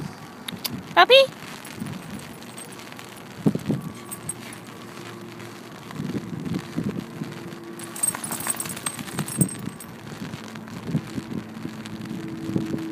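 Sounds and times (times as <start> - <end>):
rain coat rustling on microphone: 1.3 - 11.1
metal collar tags jingling: 1.5 - 5.1, 7.8 - 10.0.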